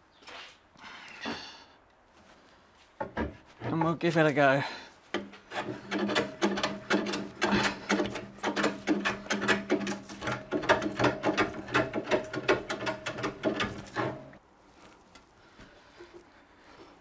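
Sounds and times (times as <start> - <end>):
plane shaving wood: 5.2 - 14.4.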